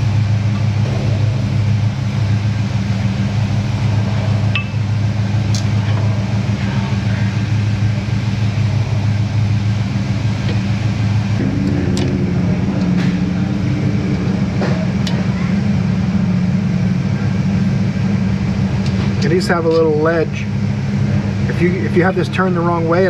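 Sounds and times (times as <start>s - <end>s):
low machine hum: 0.0s - 23.0s.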